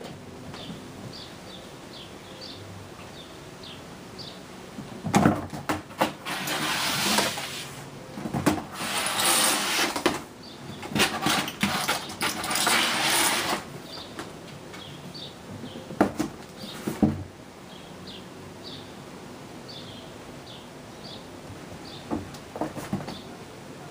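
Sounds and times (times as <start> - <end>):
kittens landing with thumps: 4.8 - 6.3, 22.1 - 23.3
claws scratching on cardboard: 6.0 - 7.8, 8.6 - 13.7.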